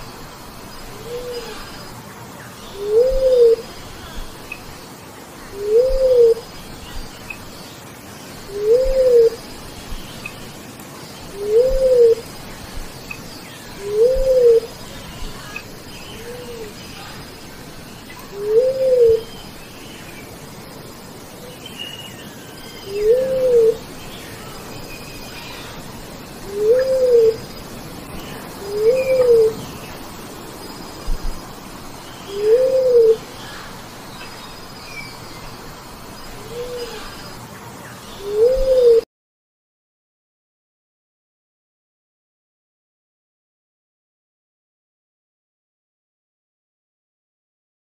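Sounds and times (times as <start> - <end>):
birds chirping: 0.0 - 39.0
dove cooing: 0.9 - 1.7, 2.8 - 3.7, 5.6 - 6.5, 8.5 - 9.4, 11.3 - 12.3, 13.8 - 14.8, 18.3 - 19.3, 22.9 - 23.9, 26.4 - 27.6, 28.5 - 29.8, 32.3 - 33.7, 36.3 - 37.2, 38.2 - 39.0.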